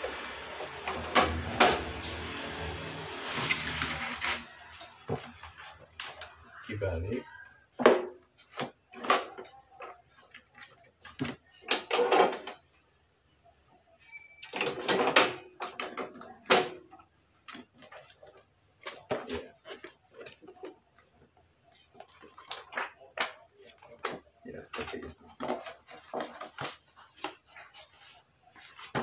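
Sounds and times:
paper rustling: 3.1 - 6.6, 25.3 - 29.0.

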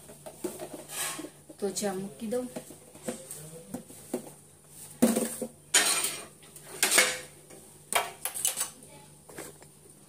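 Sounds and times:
pots and utensils clattering: 0.0 - 1.8, 4.9 - 8.8.

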